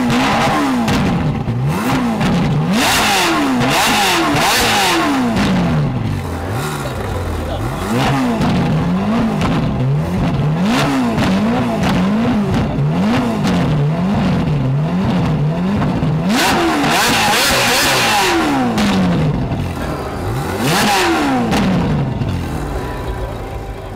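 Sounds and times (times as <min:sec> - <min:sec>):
car engine revving: 0:00.0 - 0:23.9.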